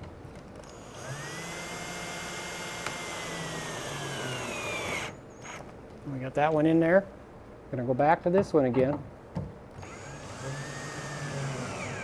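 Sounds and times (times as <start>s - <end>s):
cordless drill driving a screw: 0.7s - 5.6s, 9.8s - 12.0s.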